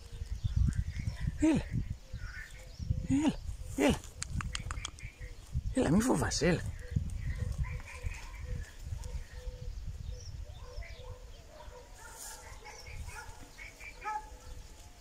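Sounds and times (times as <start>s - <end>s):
small songbirds chirping: 0.0s - 15.0s.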